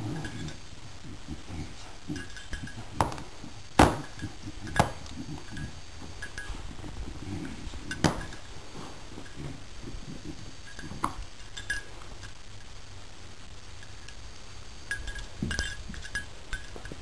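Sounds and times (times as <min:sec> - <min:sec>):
puppies rustling through toys: 0:00.0 - 0:12.4.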